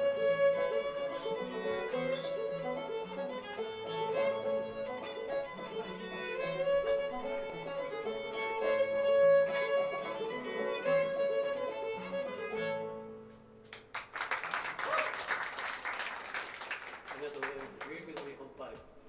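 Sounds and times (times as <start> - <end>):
string band with fiddle: 0.0 - 13.6
audience clapping: 13.6 - 18.4.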